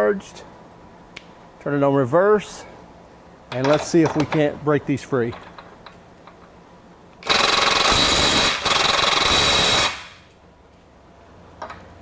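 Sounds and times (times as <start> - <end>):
impact wrench hammering: 7.2 - 10.2.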